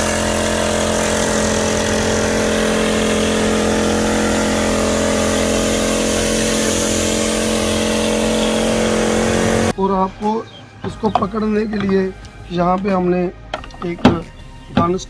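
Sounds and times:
small petrol engine running: 0.0s - 9.7s.

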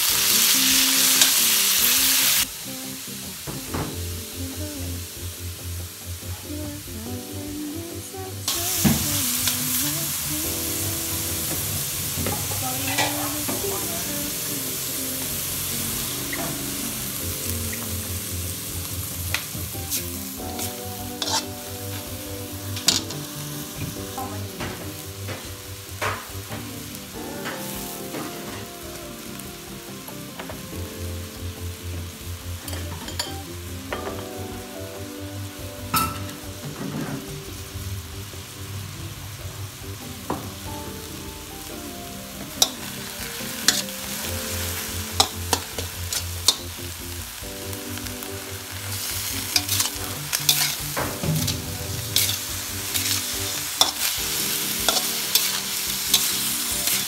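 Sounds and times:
meat sizzling in oil: 0.0s - 3.5s, 8.5s - 36.3s, 37.4s - 57.0s
spoon scraping metal wok: 12.2s - 13.5s, 19.3s - 23.5s, 42.6s - 46.7s, 49.0s - 57.0s.

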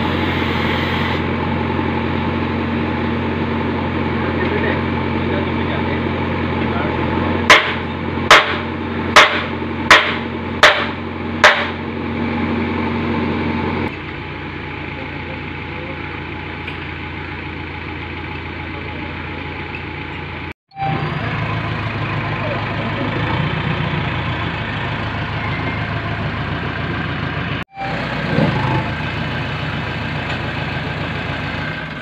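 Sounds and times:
diesel engine idling: 0.0s - 32.0s
hammer blows on metal: 7.5s - 11.8s.

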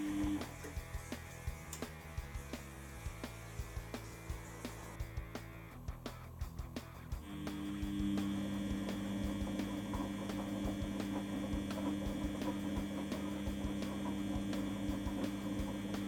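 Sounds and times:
washing machine motor hum: 0.0s - 16.0s
faint regular ticks: 0.4s - 2.6s.

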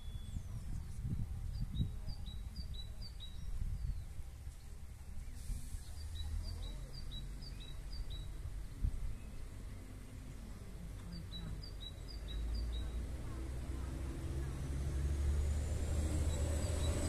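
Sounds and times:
wind on microphone: 0.0s - 4.4s
small bird singing: 0.0s - 13.4s, 15.6s - 17.0s.

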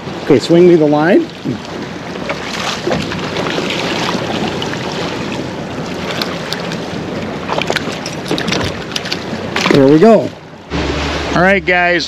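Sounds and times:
water splashing against boat: 0.0s - 12.0s
wind on microphone: 1.3s - 9.7s.

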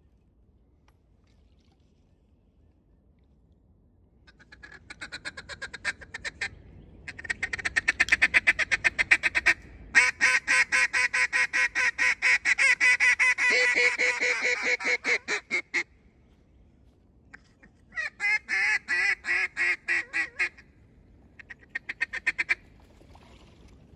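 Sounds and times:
duck call quacks: 7.1s - 15.9s, 17.9s - 20.6s, 21.4s - 22.6s.

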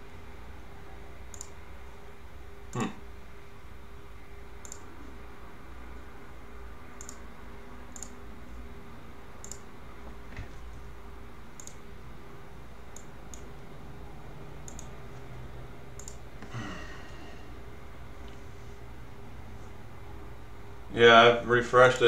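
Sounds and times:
computer mouse clicking: 1.3s - 1.6s, 4.6s - 4.9s, 7.0s - 7.3s, 7.9s - 8.2s, 9.4s - 9.7s, 11.5s - 11.8s, 12.9s - 13.5s, 14.6s - 15.0s, 16.0s - 16.2s.

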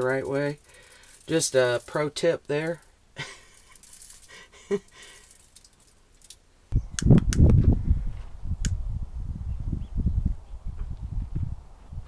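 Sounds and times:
seasoning jar shaking: 3.4s - 6.0s
wind rumbling on microphone: 6.7s - 12.0s.

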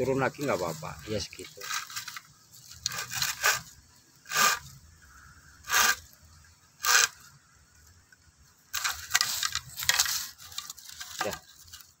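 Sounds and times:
pruning saw cutting bamboo: 0.3s - 4.8s, 5.6s - 6.2s, 6.8s - 7.4s, 8.7s - 11.9s.

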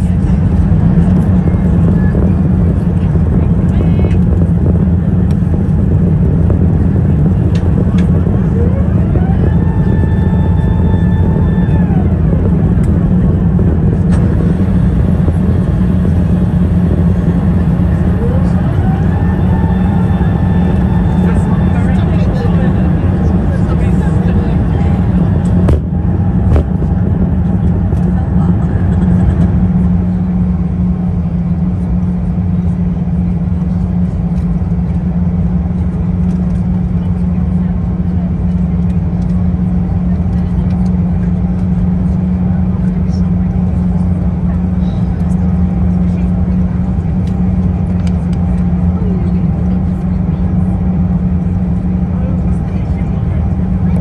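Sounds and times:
airflow over fuselage: 0.0s - 54.0s
airplane cabin rumble: 0.0s - 54.0s
high whine falling in pitch: 8.2s - 28.2s.

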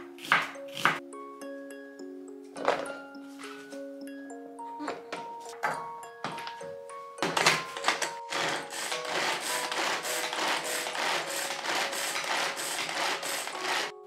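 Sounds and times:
pull-cord chopper whirring rattle: 8.3s - 13.9s.

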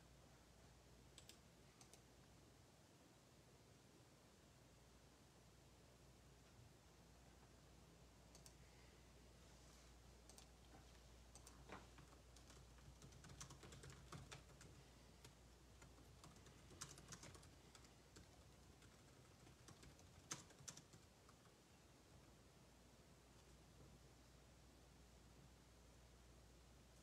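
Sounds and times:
low steady hum: 0.0s - 27.0s
typing on a keyboard: 8.3s - 8.6s, 10.2s - 10.6s, 11.3s - 21.5s.

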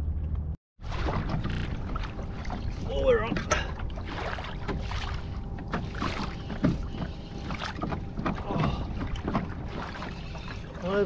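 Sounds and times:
water lapping against kayak hull: 0.8s - 11.0s.

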